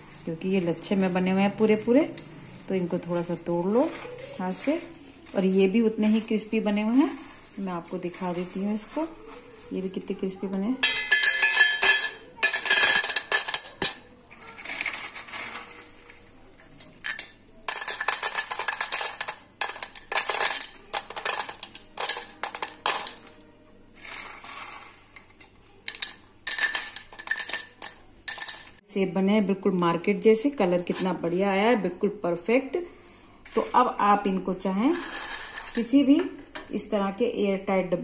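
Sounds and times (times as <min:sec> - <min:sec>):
crisp noodles clattering onto steel plate: 0:00.6 - 0:23.4, 0:24.0 - 0:28.8, 0:34.9 - 0:36.7.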